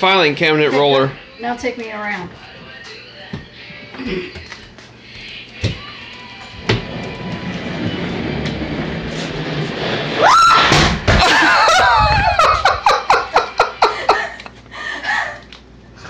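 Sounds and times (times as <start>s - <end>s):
caster wheels rumbling on wood floor: 6.6s - 13.0s
woman shrieking: 10.2s - 12.5s
thud of a fall: 10.4s - 12.5s
rapid laughter: 11.2s - 14.5s.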